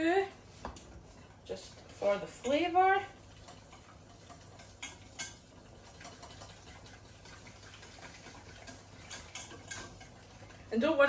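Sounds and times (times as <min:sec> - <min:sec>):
faint bubbling of boiling pans: 0:00.0 - 0:11.0
metal whisk stirring sauce: 0:01.2 - 0:11.0
whisk clicking against pan: 0:02.3 - 0:10.6.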